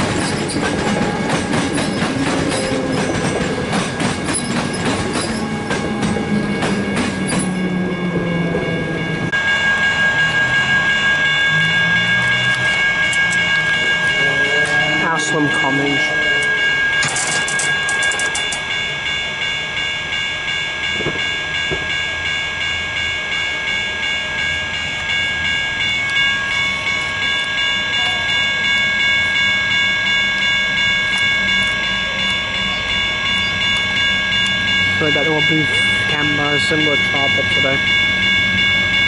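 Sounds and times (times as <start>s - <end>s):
level crossing bells ringing: 0.0s - 39.0s
train low rumble: 0.0s - 39.0s.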